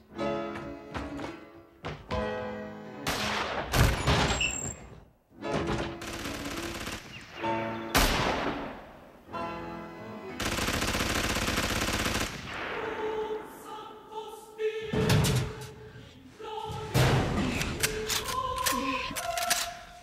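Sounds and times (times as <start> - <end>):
dramatic film score with choir: 11.7 - 20.0.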